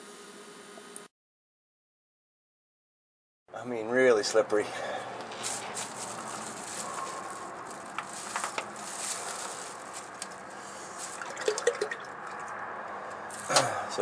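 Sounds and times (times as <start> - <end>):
oil pattering onto plastic sheet: 5.2 - 12.5.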